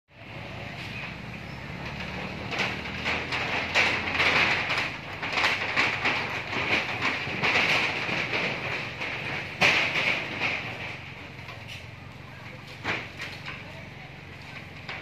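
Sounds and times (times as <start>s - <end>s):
knocks on corrugated metal roof: 1.7s - 11.4s.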